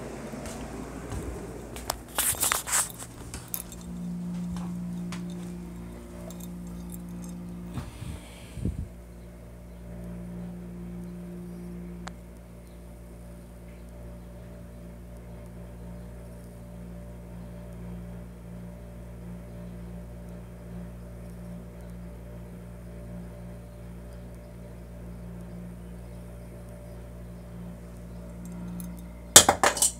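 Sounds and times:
handling bumps: 0.0 - 8.1, 28.9 - 29.9
steady low hum: 0.0 - 29.9.

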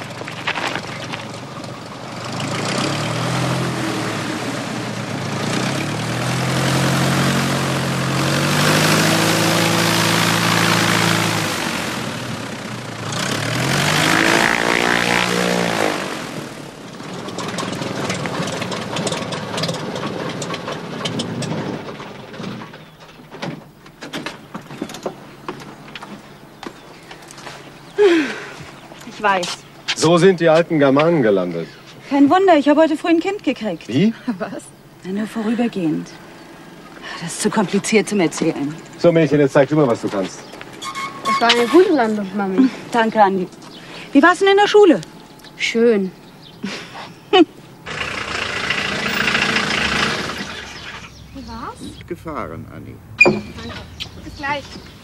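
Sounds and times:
light aircraft engine and propeller: 6.6 - 23.0.

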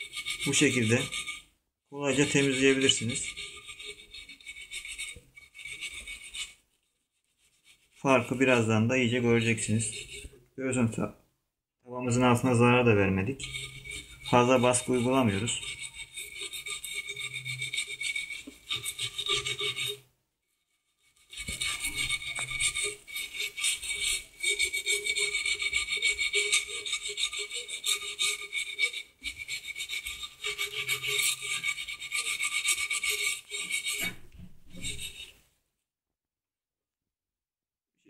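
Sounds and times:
steel wool scouring frying pan: 0.0 - 6.6, 7.4 - 10.4, 12.0 - 20.0, 20.8 - 35.4.

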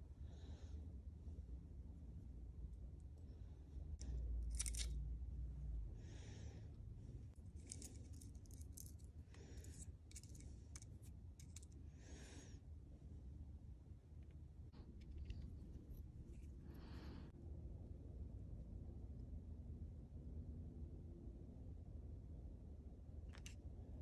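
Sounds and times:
soft breaths through nose: 11.8 - 12.7, 15.3 - 17.4.

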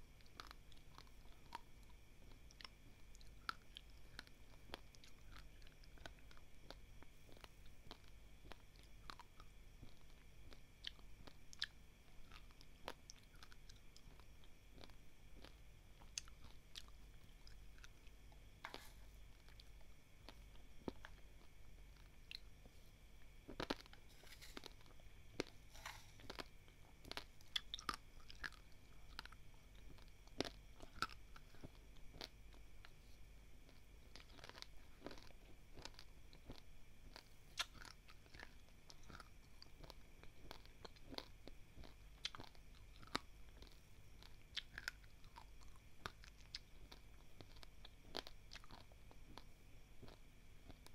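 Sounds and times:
chewing dry rice: 0.0 - 50.9
spoon scooping rice grains: 24.0 - 26.4.

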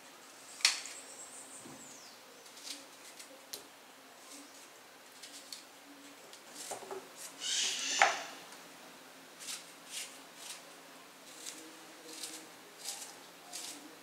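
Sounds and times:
rustle: 0.0 - 14.0
knife cutting crunchy fruit: 9.4 - 14.0.

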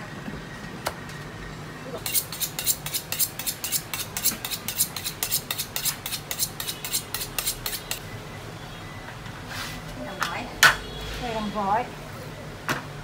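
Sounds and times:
knife scraping on honing steel: 2.0 - 8.0.

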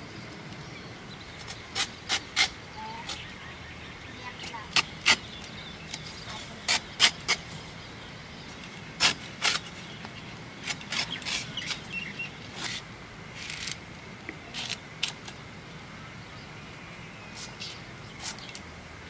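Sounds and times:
crisp slicing strokes: 4.7 - 5.3, 9.0 - 9.8.

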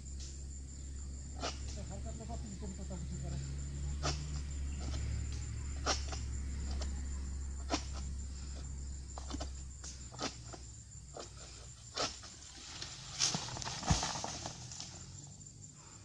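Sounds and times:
sickle knocking on palm fronds: 11.9 - 14.9.

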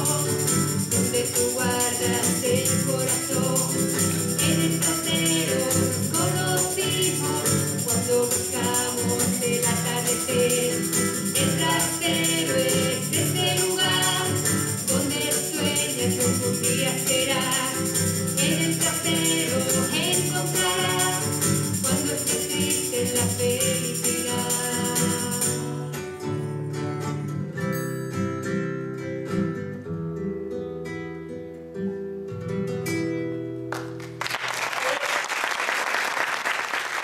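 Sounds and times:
person singing: 0.0 - 26.2
acoustic guitar: 0.0 - 34.2
audience applause: 33.8 - 37.0.

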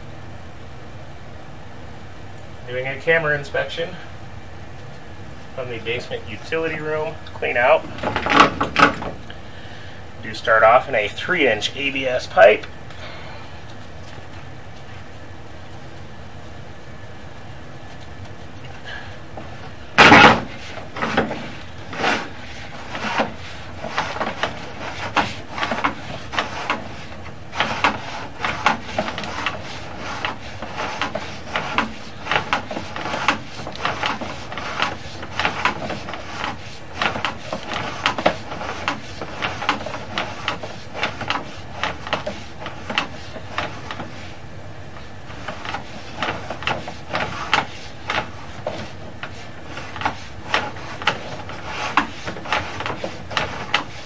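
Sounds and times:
steady low hum: 0.0 - 54.0
cable rubbing and knocking in pipe: 7.4 - 9.2, 19.4 - 54.0.

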